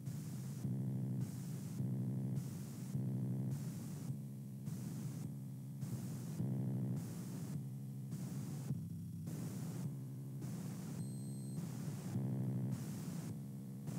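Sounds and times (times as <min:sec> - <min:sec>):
pulsing static hiss: 0:09.3 - 0:11.0, 0:11.6 - 0:13.9.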